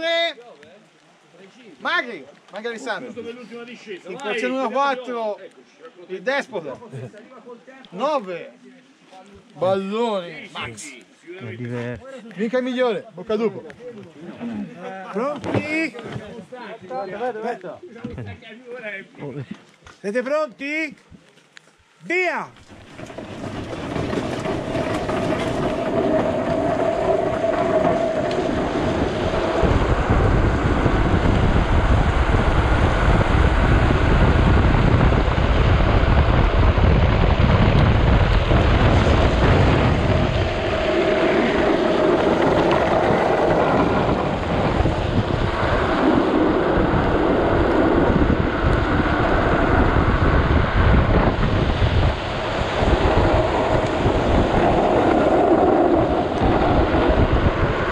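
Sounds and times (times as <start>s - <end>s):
wheels rolling on wet asphalt: 22.6s - 57.9s
wind on microphone: 22.8s - 57.9s.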